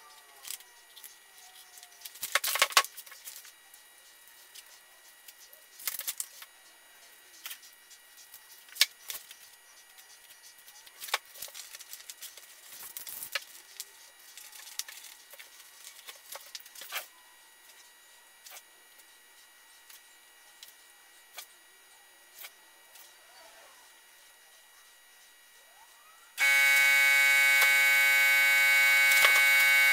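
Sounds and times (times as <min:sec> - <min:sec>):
plastic film crinkling: 0:00.4 - 0:03.6, 0:05.8 - 0:06.5, 0:08.3 - 0:17.1.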